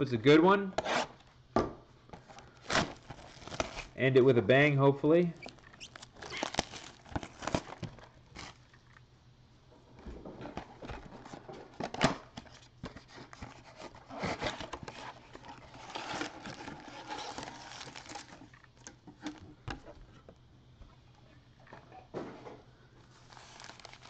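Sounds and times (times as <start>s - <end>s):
packs rustling and scraping: 2.2s - 4.0s, 5.4s - 8.7s, 10.2s - 18.6s, 23.1s - 24.0s
cardboard flap tearing: 2.6s - 4.0s, 5.4s - 8.6s, 13.3s - 18.4s, 23.2s - 24.0s.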